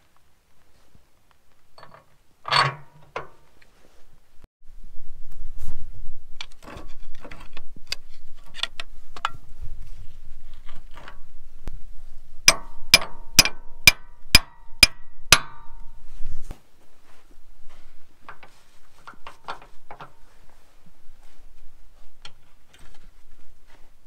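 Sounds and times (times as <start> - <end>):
tools clinking and knocking: 1.8 - 3.4, 12.5 - 15.9, 18.2 - 20.2
hammer striking steel punch: 12.5 - 15.8.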